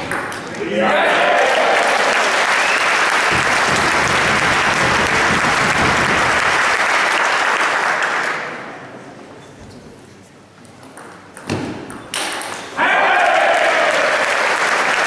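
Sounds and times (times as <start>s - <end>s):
audience applauding: 0.0s - 8.6s, 13.0s - 15.0s.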